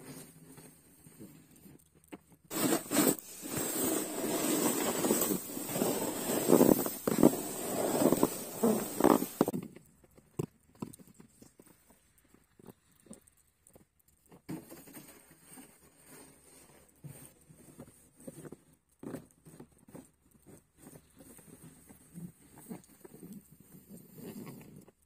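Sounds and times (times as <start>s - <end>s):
footsteps crunching in snow: 2.5s - 9.5s
snow pusher scraping snow: 2.5s - 9.5s.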